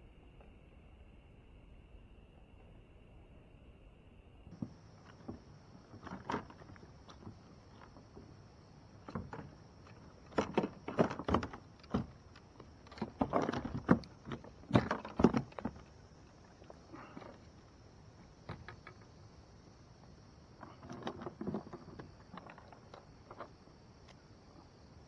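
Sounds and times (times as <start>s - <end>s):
gear knocking in a kayak: 4.5s - 19.2s, 20.1s - 24.2s.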